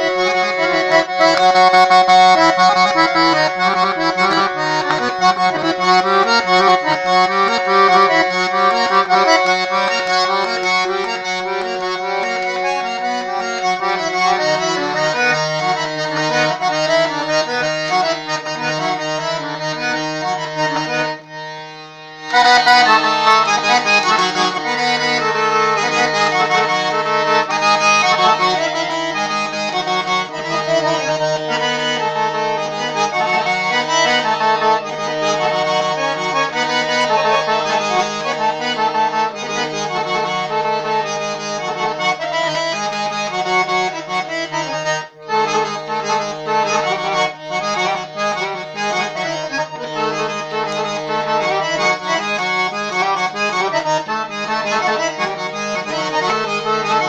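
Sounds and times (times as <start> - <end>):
piano accordion melody: 0.0 - 57.0.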